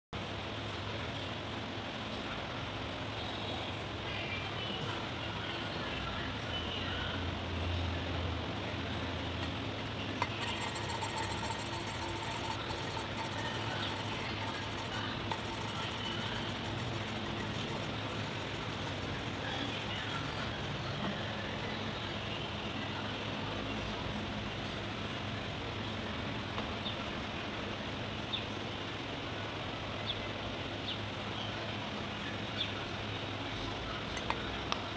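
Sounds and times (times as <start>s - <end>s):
low mechanical rumble: 0.2s - 34.9s
low hum: 7.4s - 21.9s.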